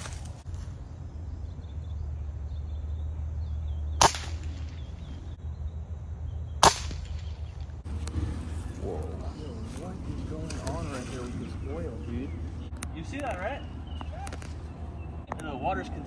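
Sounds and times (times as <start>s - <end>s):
air rifle shots: 4.0s - 5.1s, 6.6s - 7.7s.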